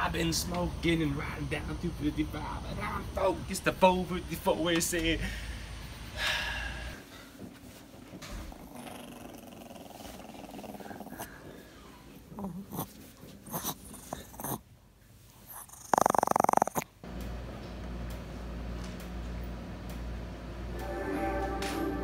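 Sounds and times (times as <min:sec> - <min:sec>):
dog growling: 0:07.9 - 0:14.7, 0:15.5 - 0:16.9
dog grumbling: 0:08.0 - 0:14.7, 0:15.5 - 0:16.9.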